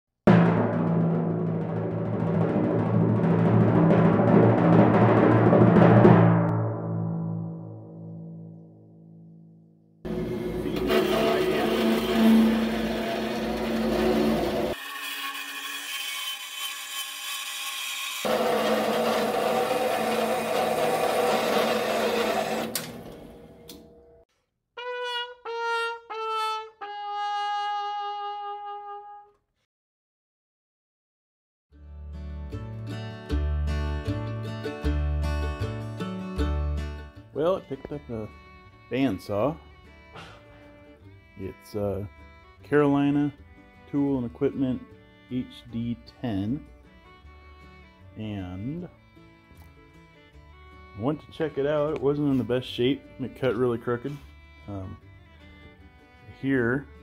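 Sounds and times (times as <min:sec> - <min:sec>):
timpani roll: 0:00.3 - 0:08.7, 0:10.1 - 0:14.8
band saw cutting steel: 0:10.1 - 0:23.9
sad trombone sound effect: 0:24.8 - 0:29.4.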